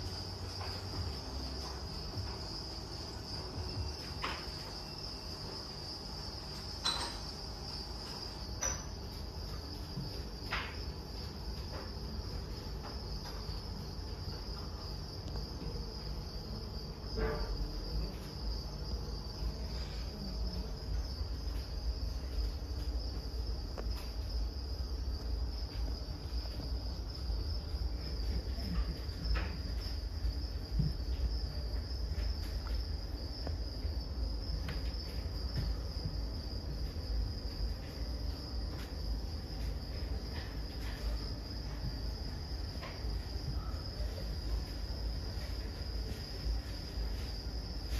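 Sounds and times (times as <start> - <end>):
crickets chirping: 0.0 - 47.9.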